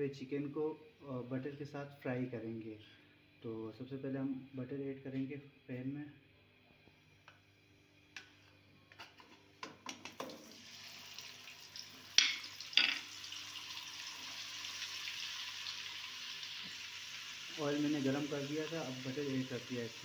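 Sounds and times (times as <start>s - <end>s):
butter sizzling in hot oil: 10.0s - 20.0s
utensils knocking against pan: 12.2s - 13.1s.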